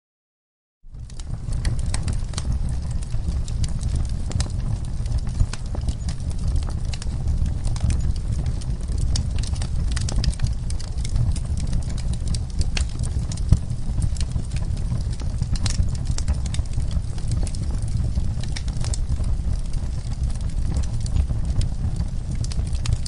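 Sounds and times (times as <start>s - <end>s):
low rumble of flames: 0.8s - 23.0s
fire crackling and popping: 0.9s - 23.0s.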